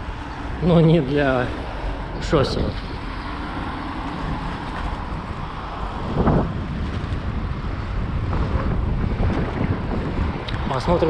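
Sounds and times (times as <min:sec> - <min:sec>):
bicycle road noise: 0:00.0 - 0:11.0
street traffic: 0:00.0 - 0:11.0
wind on microphone: 0:00.0 - 0:11.0.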